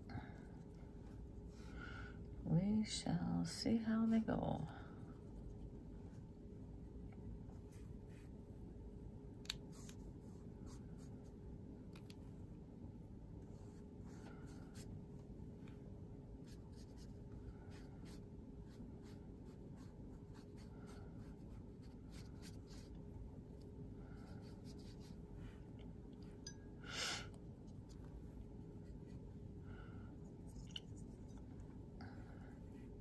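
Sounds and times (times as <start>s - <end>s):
steady low hum: 0.0s - 33.0s
paintbrush strokes on paper: 5.1s - 8.5s, 9.7s - 11.3s, 13.4s - 15.3s, 16.4s - 23.0s, 23.6s - 25.7s, 27.6s - 29.5s.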